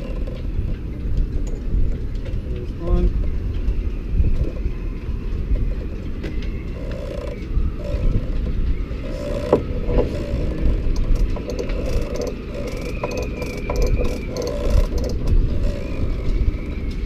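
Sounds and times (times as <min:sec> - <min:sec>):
steady low rumble: 0:00.0 - 0:17.0
metal winch parts clicking: 0:05.8 - 0:08.3, 0:09.0 - 0:17.0.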